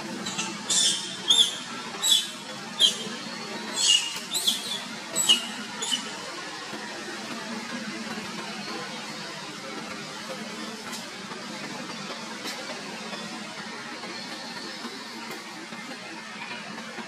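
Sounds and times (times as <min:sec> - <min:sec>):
monkey screaming squeals: 0:00.3 - 0:03.1, 0:03.7 - 0:06.1.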